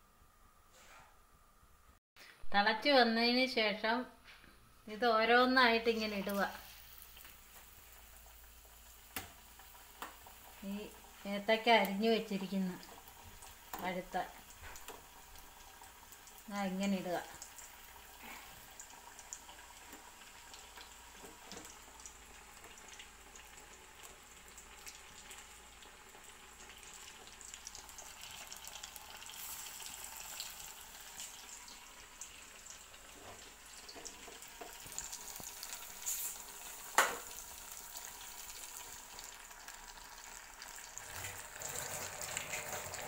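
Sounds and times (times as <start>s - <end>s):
batter deep-frying in oil: 4.9s - 43.0s.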